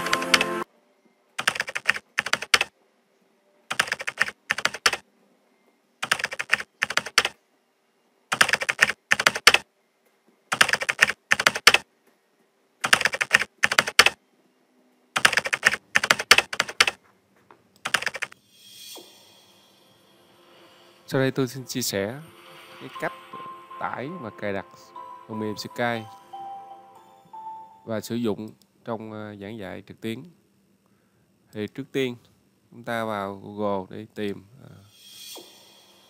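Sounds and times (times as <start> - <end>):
keyboard typing clicks: 1.4 - 2.7, 3.7 - 5.0, 6.0 - 7.4, 8.3 - 9.6, 10.5 - 11.8, 12.8 - 14.2, 15.2 - 17.0, 17.8 - 18.4.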